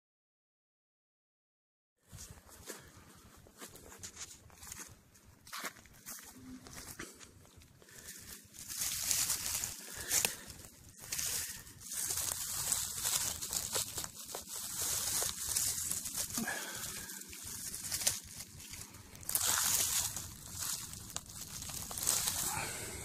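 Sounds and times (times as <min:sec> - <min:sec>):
dry leaves rustling and crackling: 0:05.8 - 0:23.0.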